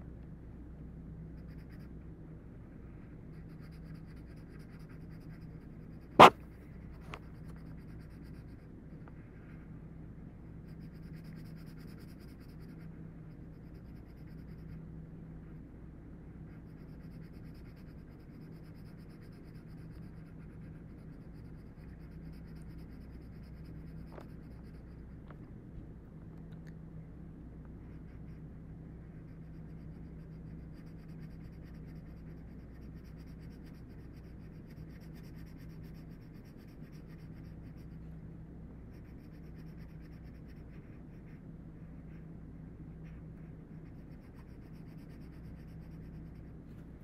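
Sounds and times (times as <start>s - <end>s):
pencil scratching on paper: 1.4s - 2.0s, 3.2s - 8.7s, 10.6s - 14.8s, 16.4s - 25.2s, 27.8s - 28.5s, 29.1s - 38.1s, 38.9s - 46.7s.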